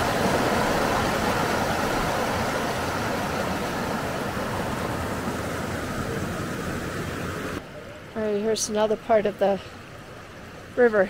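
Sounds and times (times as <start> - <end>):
water rushing over boulders: 0.0 - 7.7.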